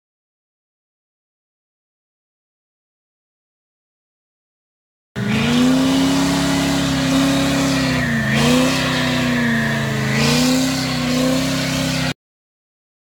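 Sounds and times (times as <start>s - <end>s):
tyres spinning: 5.2s - 12.1s
pickup engine revving high: 5.2s - 12.2s.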